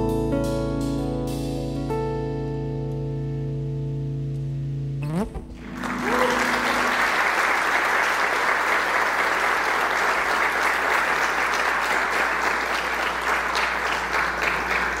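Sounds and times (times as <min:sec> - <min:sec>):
audience applauding: 0:05.6 - 0:15.0.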